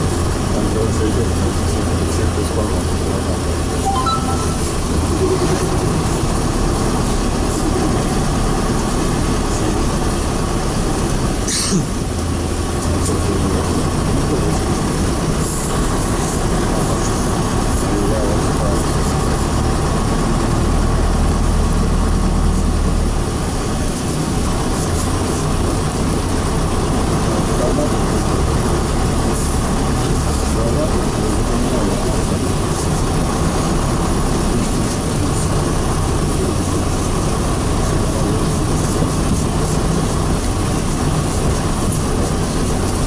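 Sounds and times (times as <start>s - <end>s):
bus engine running: 0.0s - 43.0s
road noise: 0.0s - 43.0s.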